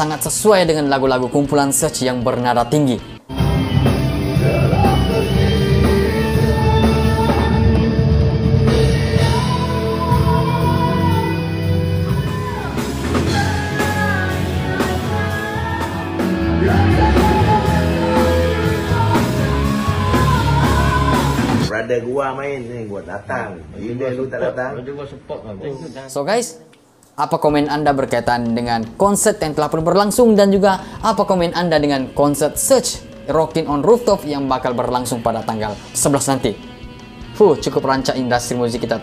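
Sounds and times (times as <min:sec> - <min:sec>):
drums: 0:00.0 - 0:21.8, 0:27.4 - 0:39.0
electric guitars: 0:02.2 - 0:21.7, 0:30.2 - 0:39.0
bass guitar: 0:03.0 - 0:21.7
man singing high notes: 0:04.3 - 0:07.6, 0:16.4 - 0:21.1.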